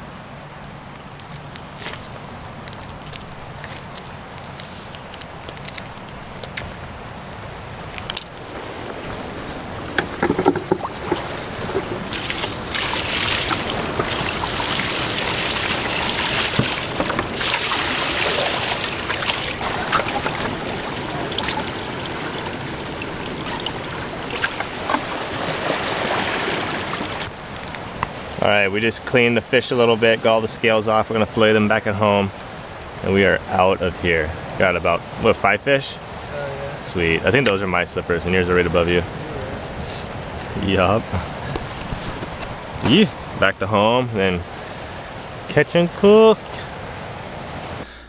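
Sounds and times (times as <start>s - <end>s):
water poured splashing: 10.2s - 27.3s.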